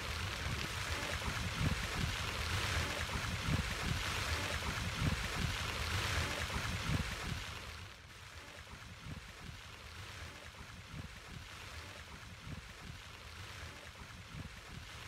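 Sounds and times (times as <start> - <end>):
wind gusting on microphone: 0.0 - 7.5
water rushing over weir: 0.0 - 15.0.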